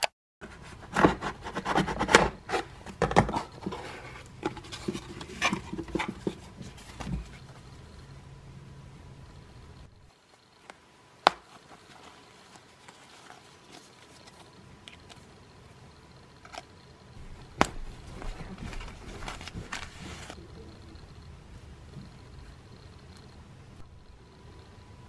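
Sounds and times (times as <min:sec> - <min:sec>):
paper and fabric rustling: 0:00.4 - 0:07.6, 0:11.4 - 0:15.3, 0:17.2 - 0:20.4.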